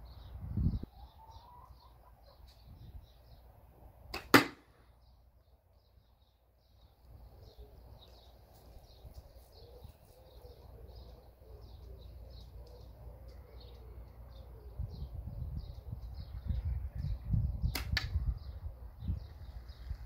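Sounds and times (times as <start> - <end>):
low wind rumble: 0.0 - 1.4, 2.6 - 5.8, 12.2 - 20.0
small birds chirping: 0.0 - 3.7, 4.7 - 20.0
catapult shot crack: 4.1 - 4.7
faint catapult snap: 17.7 - 18.2.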